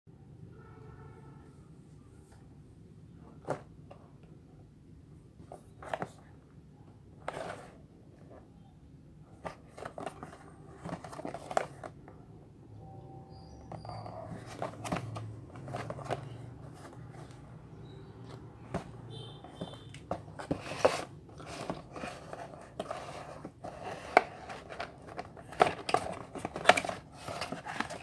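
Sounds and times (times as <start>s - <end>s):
cardboard box rubbing and crinkling: 20.1s - 28.0s.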